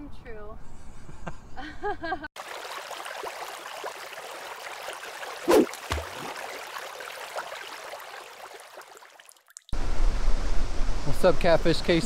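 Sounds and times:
trickling water hiss: 0:02.4 - 0:09.9
loud plop: 0:05.4 - 0:06.4.

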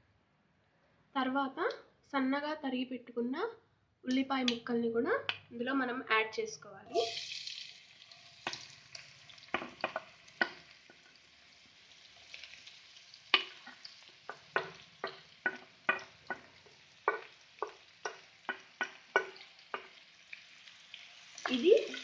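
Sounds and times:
onions sizzling in oil: 0:06.9 - 0:22.0
wooden spatula knocking and scraping: 0:09.5 - 0:11.1, 0:13.3 - 0:20.0.

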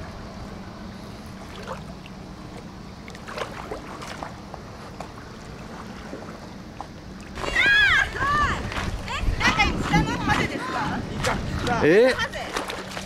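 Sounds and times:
gentle water at beach: 0:00.0 - 0:13.0
wind on microphone: 0:07.4 - 0:12.6.

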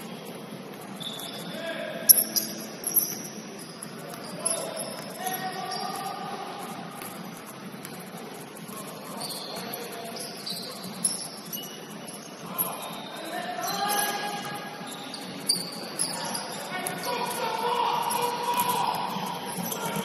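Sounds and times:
sneakers squeaking: 0:00.0 - 0:20.0
players calling out: 0:01.0 - 0:07.1, 0:12.1 - 0:20.0.

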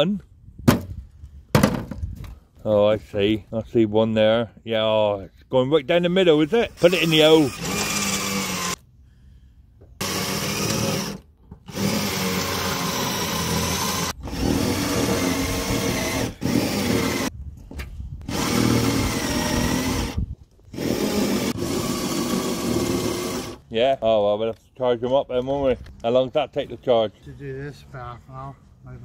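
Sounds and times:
cordless drill drilling into metal: 0:06.5 - 0:08.8, 0:10.0 - 0:17.3, 0:18.3 - 0:23.6.

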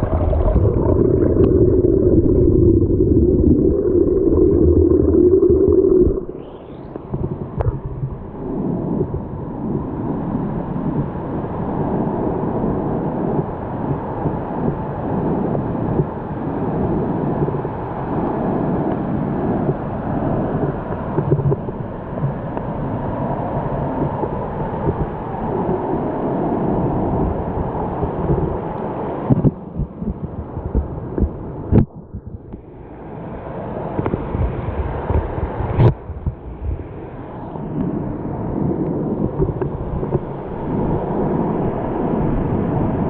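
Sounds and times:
water rushing over waterfall: 0:00.0 - 0:07.1.

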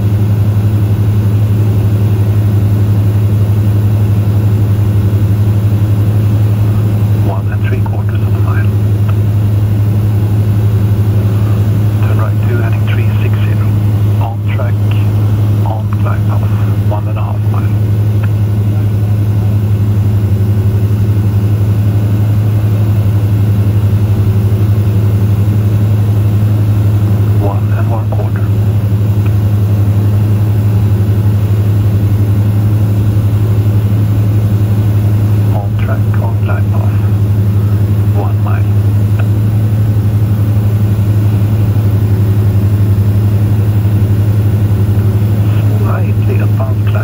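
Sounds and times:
aircraft engine and propeller droning: 0:00.0 - 0:47.0.

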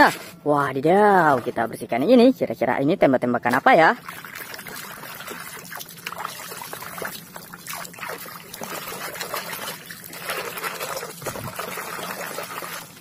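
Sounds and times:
water sloshing in plastic basin: 0:03.4 - 0:13.0.

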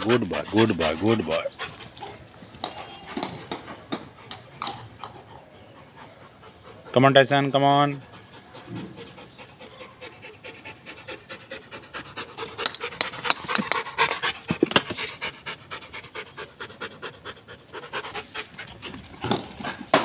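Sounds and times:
dog panting rapidly: 0:00.0 - 0:04.4, 0:05.0 - 0:20.0.

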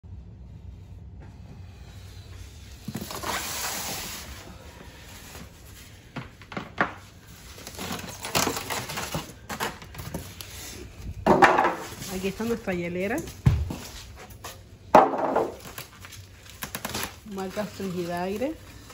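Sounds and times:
styrofoam scraping and creaking: 0:02.7 - 0:05.7, 0:07.2 - 0:11.0, 0:15.4 - 0:18.9
plastic wrap rustling: 0:02.8 - 0:06.0, 0:07.0 - 0:18.9.

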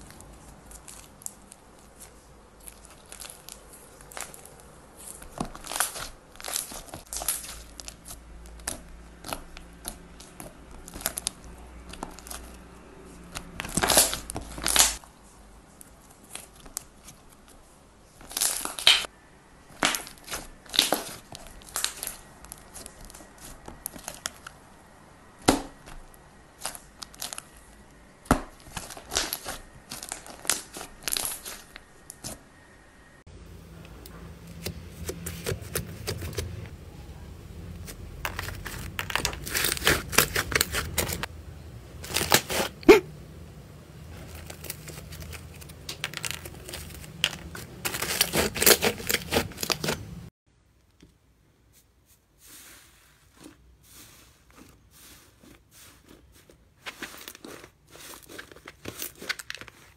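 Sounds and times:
crunchy slime being squeezed: 0:00.0 - 0:12.6, 0:13.3 - 0:15.0, 0:19.7 - 0:24.5, 0:25.4 - 0:32.4, 0:37.8 - 0:41.3, 0:44.2 - 0:50.1.

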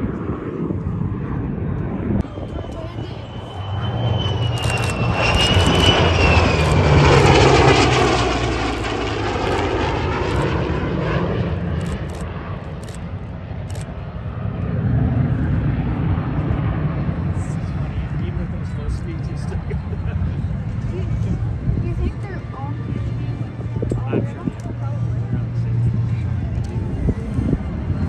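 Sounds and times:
jet whine dropping in pitch: 0:01.5 - 0:11.7
piston engines droning: 0:01.7 - 0:10.9.

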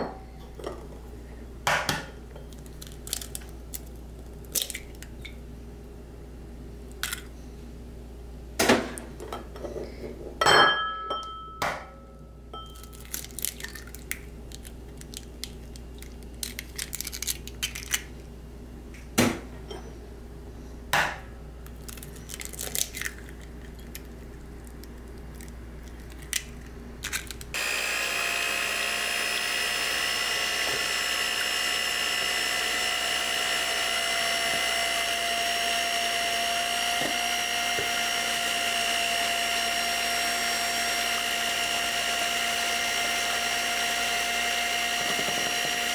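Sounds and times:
eggs cracking on glass bowl: 0:12.7 - 0:18.0
electric hand mixer whining: 0:27.5 - 0:45.9.

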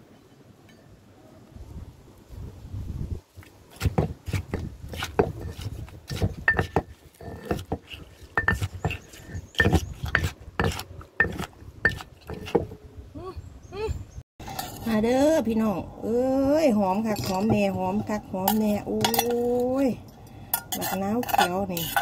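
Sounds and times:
pestle pounding in a mortar: 0:03.7 - 0:12.8, 0:17.2 - 0:19.4
spoon clinking against mortar: 0:08.2 - 0:10.3, 0:17.1 - 0:19.6, 0:20.2 - 0:22.0.

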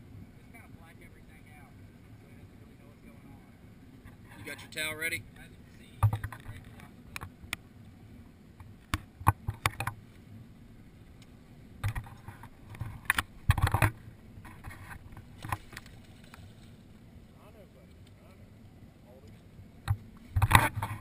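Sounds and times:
fishing gear clicking and rattling: 0:06.0 - 0:07.3, 0:11.8 - 0:16.8.

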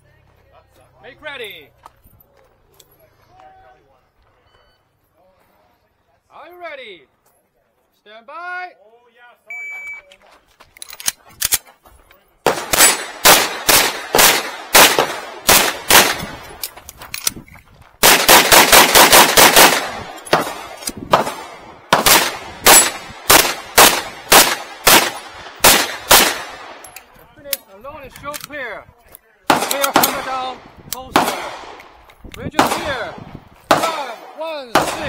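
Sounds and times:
pistol shots: 0:12.4 - 0:16.7, 0:18.0 - 0:26.9, 0:29.5 - 0:35.0.

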